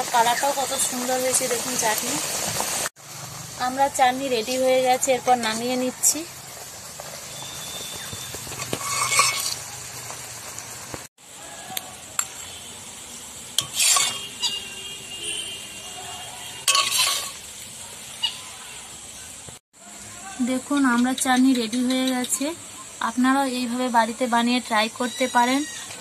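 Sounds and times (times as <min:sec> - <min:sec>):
ladle scraping metal wok: 0:08.4 - 0:09.7, 0:13.6 - 0:14.8, 0:16.6 - 0:17.5.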